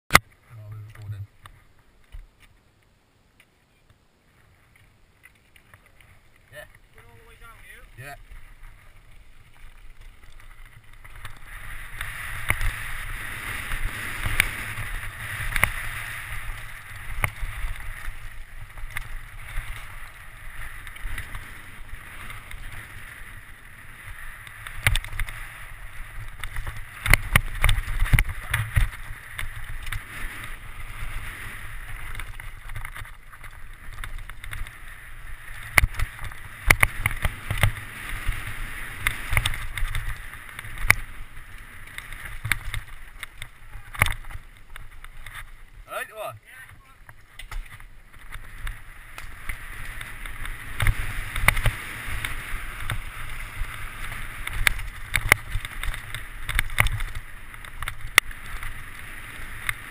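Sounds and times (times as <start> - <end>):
air rush and tyre noise: 4.2 - 59.9
bike knocking and rattling: 4.7 - 45.7, 46.6 - 59.9.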